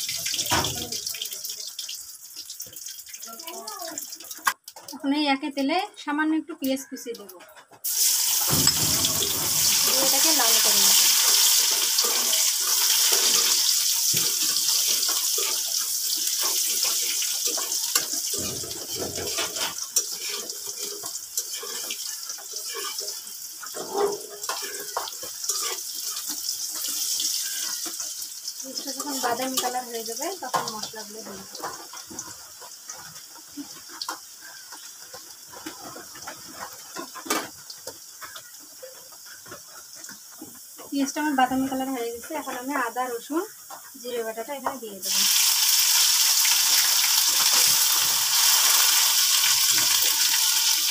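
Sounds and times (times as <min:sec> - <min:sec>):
onion sizzling in oil: 0:00.0 - 0:50.9
metal spatula scraping pan: 0:08.0 - 0:29.9
sharp pop of frying oil: 0:08.4 - 0:09.7.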